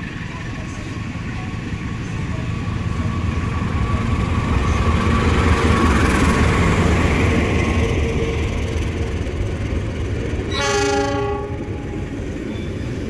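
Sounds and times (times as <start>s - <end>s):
locomotive diesel engine rumble: 0.0s - 13.0s.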